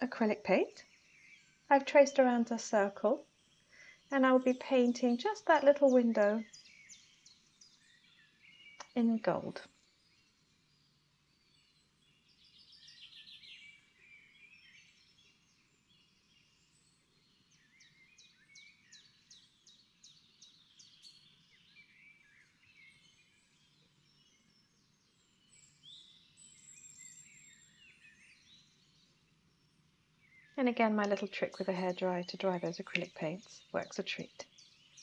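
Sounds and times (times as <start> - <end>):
faint birds chirping: 0.0 - 35.0.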